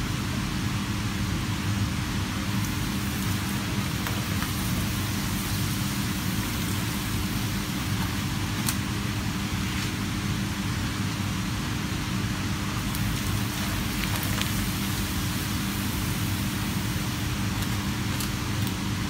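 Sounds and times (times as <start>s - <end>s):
oil sizzling in a pan: 2.3s - 9.3s, 12.7s - 18.5s.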